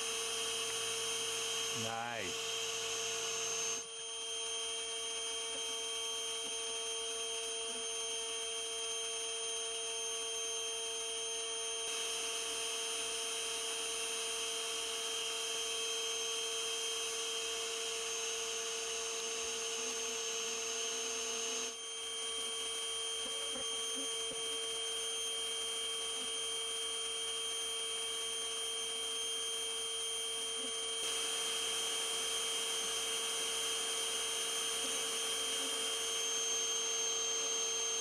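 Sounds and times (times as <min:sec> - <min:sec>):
vacuum motor humming: 0:30.5 - 0:38.0.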